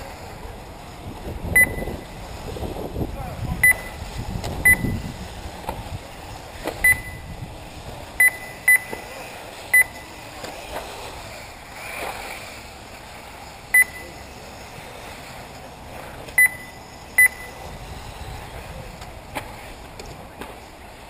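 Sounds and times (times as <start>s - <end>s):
faint electric rc cars: 0.0s - 21.0s
short electronic beeps: 1.6s - 2.0s, 3.6s - 4.0s, 4.6s - 5.0s, 6.8s - 7.3s, 8.2s - 9.0s, 9.7s - 10.0s, 13.7s - 14.2s, 16.4s - 17.6s.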